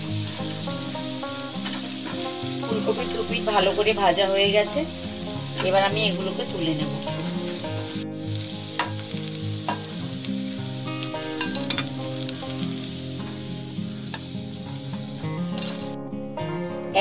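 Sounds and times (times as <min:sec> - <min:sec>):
food sizzling in hot oil: 0:00.0 - 0:17.0.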